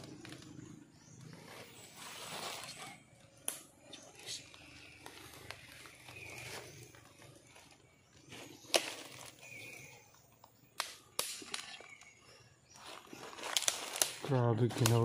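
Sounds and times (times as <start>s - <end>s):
forest ambience: 0.0s - 15.0s
sharp snaps and clicks: 3.4s - 5.6s, 10.4s - 12.1s, 13.4s - 15.0s.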